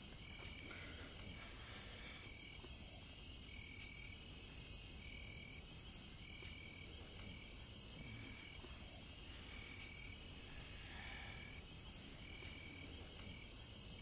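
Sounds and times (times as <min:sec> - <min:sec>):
insects chirring: 0:00.0 - 0:14.0
high-pitched insect call: 0:05.0 - 0:14.0.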